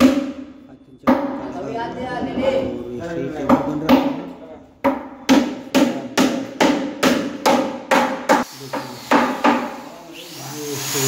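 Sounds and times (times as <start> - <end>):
hammer striking wood: 0.0 - 0.5, 1.1 - 1.4, 3.5 - 9.8.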